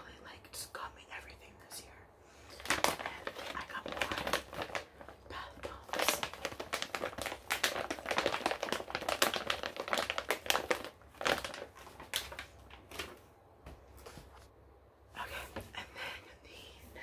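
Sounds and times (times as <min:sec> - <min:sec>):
plastic pouch crinkling: 0:02.5 - 0:13.2.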